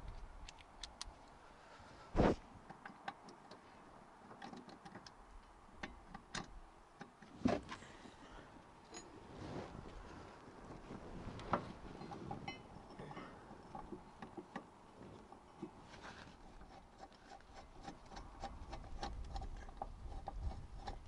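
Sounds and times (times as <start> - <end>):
metal taps and knocks: 11.5 - 14.7.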